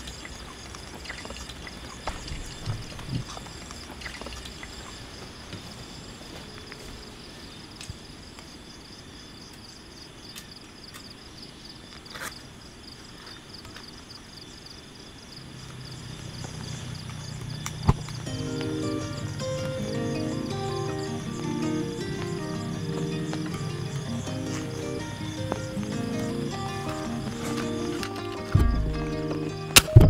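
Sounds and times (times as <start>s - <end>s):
insects chirring: 0.0s - 30.0s
low background music: 18.2s - 30.0s.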